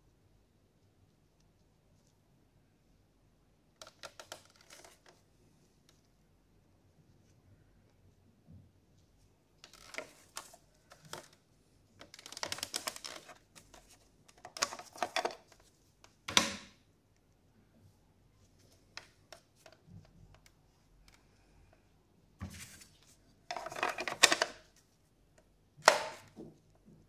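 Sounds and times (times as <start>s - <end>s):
plastic case clicks and rattles: 14.3s - 15.6s.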